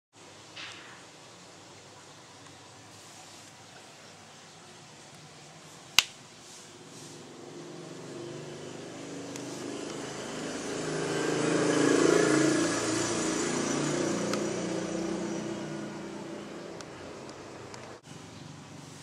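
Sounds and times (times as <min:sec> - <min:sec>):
motor vehicle passing by: 0:06.4 - 0:19.0.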